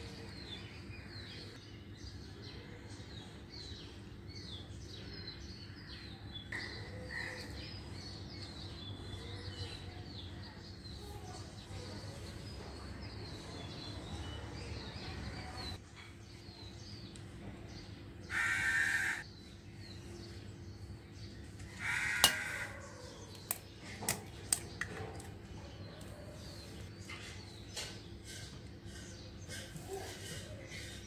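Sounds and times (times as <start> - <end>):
small birds chirping: 0.0 - 31.0
crow cawing: 18.3 - 19.2, 21.8 - 22.8.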